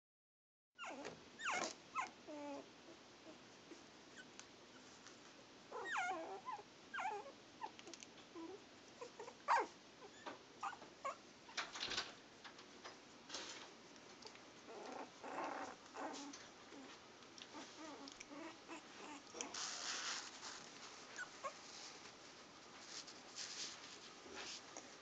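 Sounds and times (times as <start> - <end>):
puppies whimpering and squeaking: 0.8 - 2.6, 5.7 - 7.8, 8.4 - 11.2, 14.7 - 16.9, 21.2 - 21.6.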